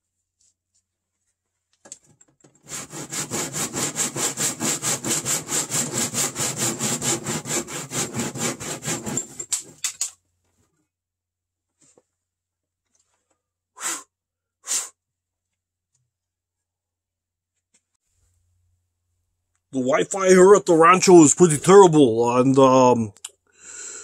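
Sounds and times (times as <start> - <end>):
hand saw cutting wood: 2.6 - 9.8.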